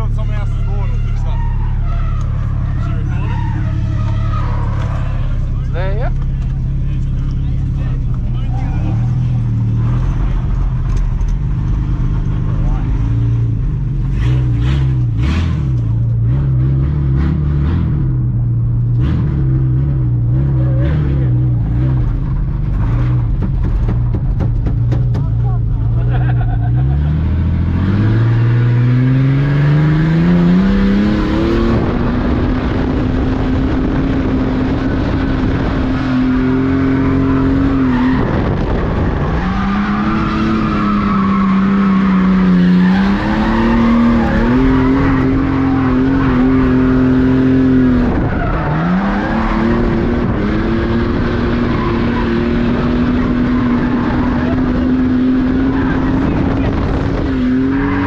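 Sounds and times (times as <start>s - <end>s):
tyres squealing: 0.0s - 5.6s
car engine revving hard: 11.6s - 23.3s, 26.0s - 58.0s.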